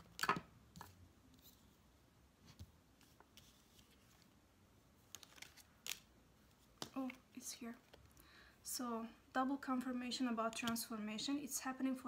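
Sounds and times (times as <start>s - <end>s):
cards slapping and sliding: 5.0s - 7.2s.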